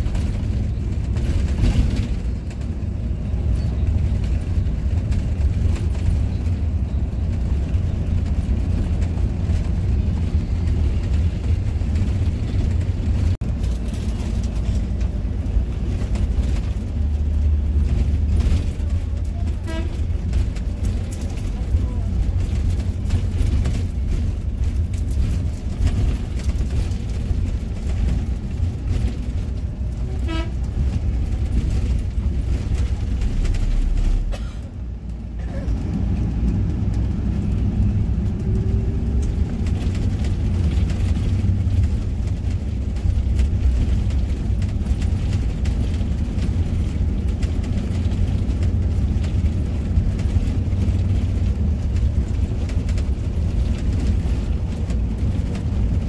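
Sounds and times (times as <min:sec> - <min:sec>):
bus engine and road rumble: 0:00.0 - 0:56.0
horn toot: 0:30.1 - 0:30.6.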